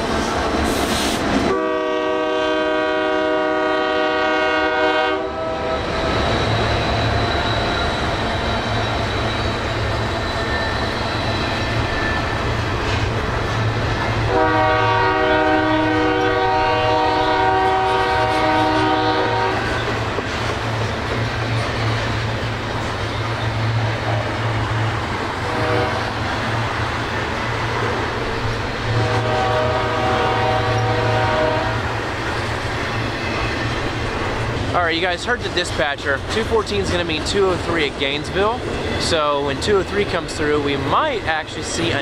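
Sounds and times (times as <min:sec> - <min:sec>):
locomotive air horn blasts: 0:01.5 - 0:05.8, 0:14.3 - 0:19.8, 0:25.4 - 0:26.1, 0:28.9 - 0:31.9.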